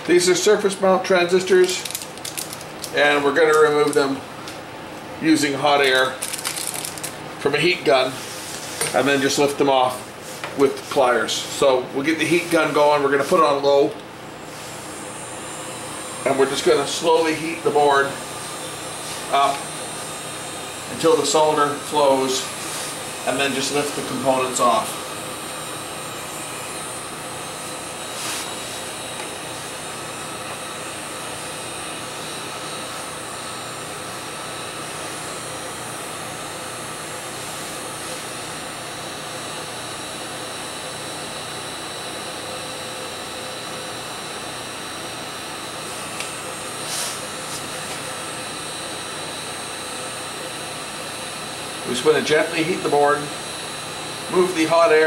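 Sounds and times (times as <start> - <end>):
heat gun blowing air: 14.4 - 38.3, 45.9 - 49.0.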